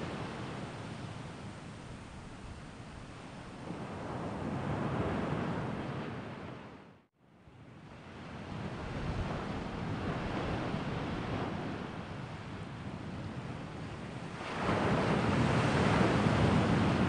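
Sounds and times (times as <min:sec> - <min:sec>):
wind rushing over microphone: 0:08.0 - 0:17.0.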